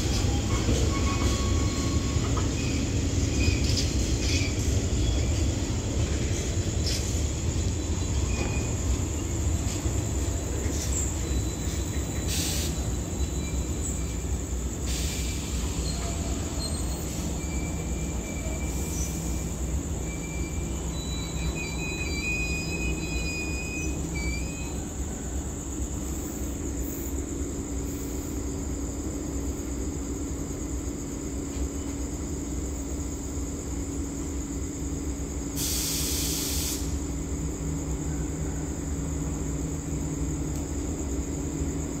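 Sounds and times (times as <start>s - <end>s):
faint wheel squeal: 0.0s - 5.4s, 8.1s - 9.8s, 10.6s - 14.3s, 14.9s - 25.4s
diesel locomotive humming: 0.0s - 42.0s
compressed air hissing: 11.6s - 13.2s, 14.7s - 17.5s, 35.5s - 37.1s.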